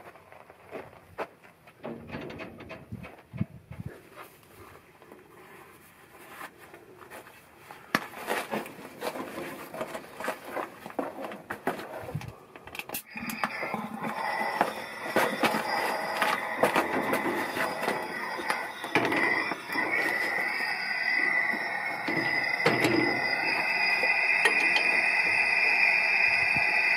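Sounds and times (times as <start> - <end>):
tools clicking and scraping: 11.7 - 20.6.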